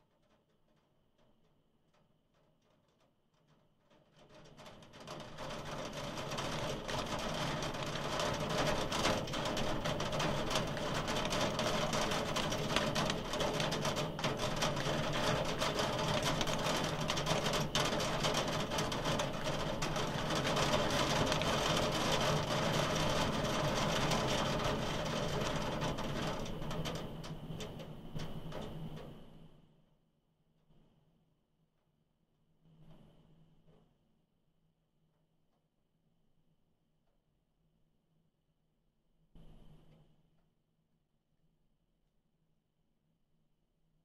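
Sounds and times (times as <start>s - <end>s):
hail and rain on a window: 0.1s - 29.2s.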